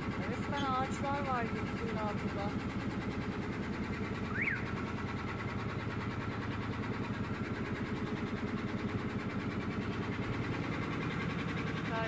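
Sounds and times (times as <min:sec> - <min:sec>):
boat engine throbbing: 0:00.0 - 0:12.0.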